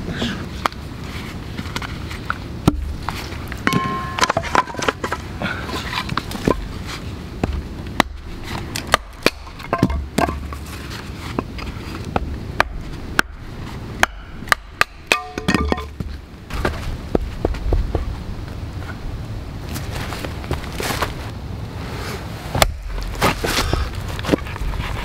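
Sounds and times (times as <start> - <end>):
axe splitting firewood: 2.6 - 6.8, 7.4 - 16.8, 22.6 - 24.6.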